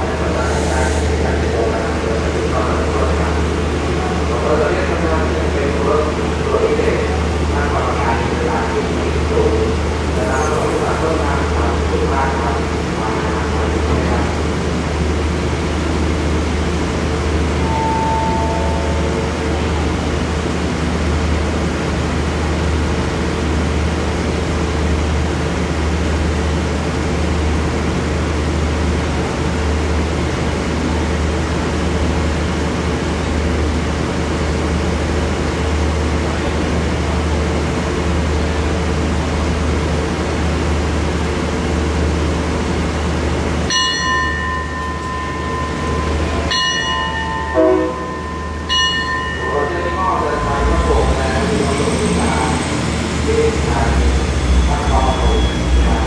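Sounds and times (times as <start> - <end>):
diesel train idling drone: 0.0 - 56.0
train horn: 47.5 - 48.2.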